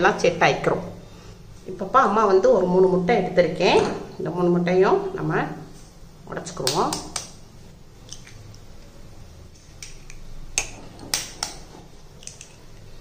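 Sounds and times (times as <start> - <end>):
eggshell cracking: 8.0 - 8.6, 9.6 - 12.8.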